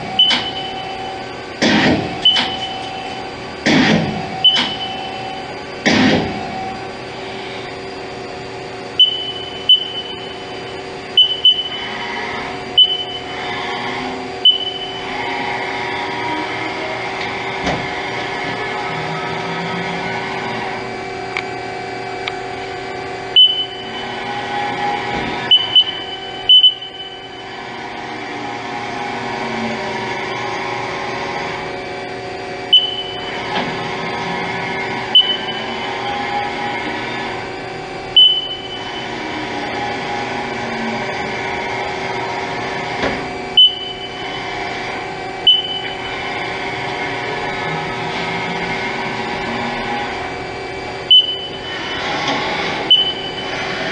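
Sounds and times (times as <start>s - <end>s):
lathe mechanical hum: 0.0s - 53.9s.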